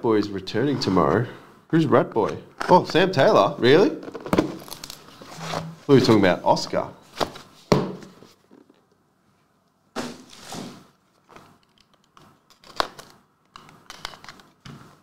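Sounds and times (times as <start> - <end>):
cardboard box scraping rustle: 5.1 - 6.1
small clicks and rustles: 11.1 - 14.6.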